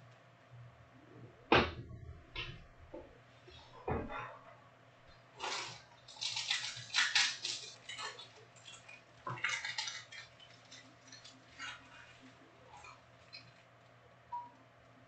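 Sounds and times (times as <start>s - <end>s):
foil wrappers crinkling: 5.4s - 14.0s.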